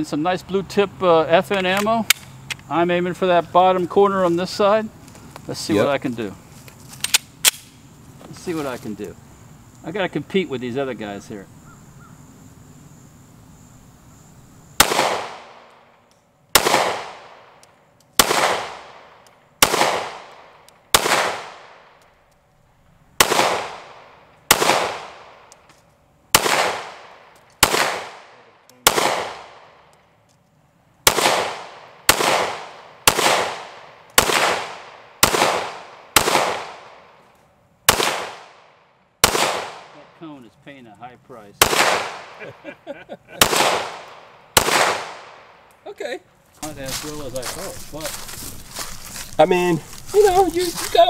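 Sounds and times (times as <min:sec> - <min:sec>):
pistol shots echoing: 0:14.8 - 0:15.9, 0:16.5 - 0:17.6, 0:18.2 - 0:22.0, 0:23.2 - 0:25.5, 0:26.3 - 0:29.9, 0:31.0 - 0:37.2, 0:37.9 - 0:40.1, 0:41.6 - 0:42.5, 0:43.4 - 0:45.7.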